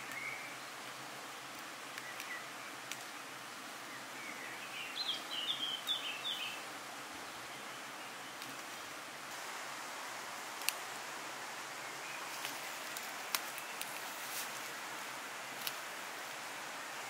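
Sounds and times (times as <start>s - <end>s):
songbird singing rapid notes: 0.0s - 0.8s, 1.9s - 3.1s, 3.8s - 9.0s
outdoor background hiss: 0.0s - 17.0s.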